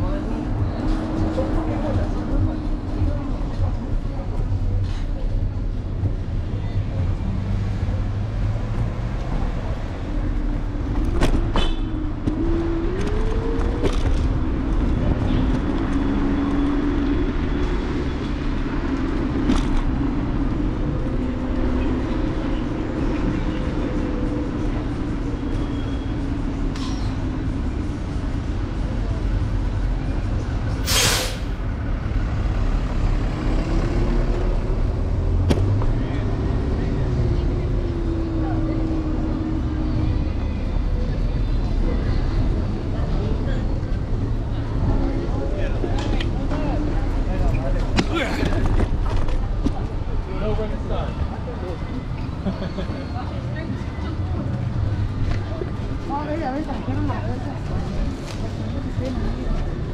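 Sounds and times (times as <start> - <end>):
road and wind rumble: 0.0 - 59.9
short sharp hiss: 30.8 - 31.6.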